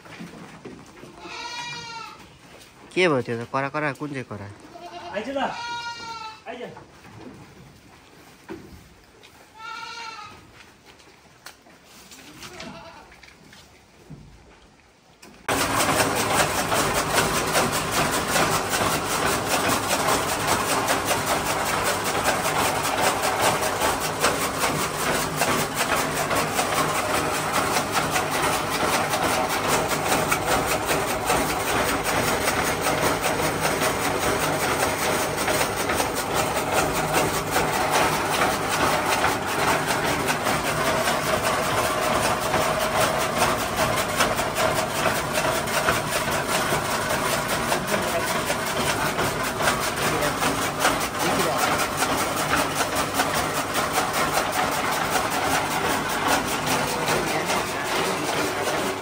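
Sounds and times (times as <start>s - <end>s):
engine running steadily: 15.5s - 59.0s.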